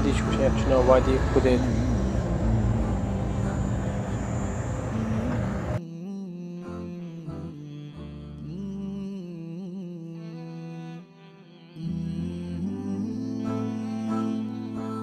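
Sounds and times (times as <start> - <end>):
slow bowed-string music: 0.0 - 5.8, 10.0 - 15.0
van engine and tyres rumbling: 0.0 - 5.8.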